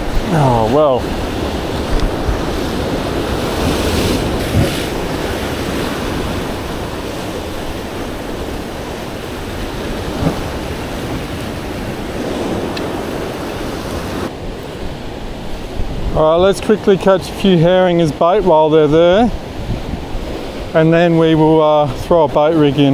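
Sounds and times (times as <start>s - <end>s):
waves washing against rocks: 0.0s - 22.9s
wind on microphone: 0.0s - 22.9s
low thumps: 9.7s - 11.8s.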